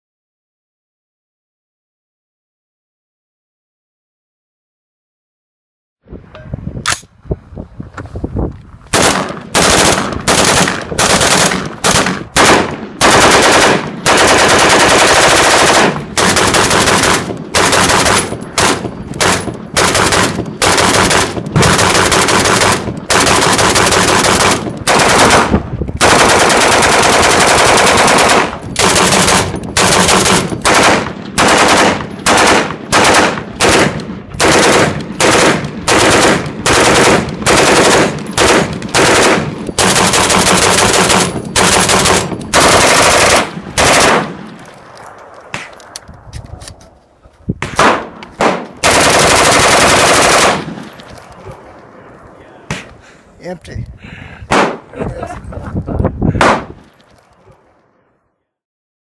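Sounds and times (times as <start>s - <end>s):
rapid automatic gunfire: 9.0s - 44.4s, 47.8s - 50.8s.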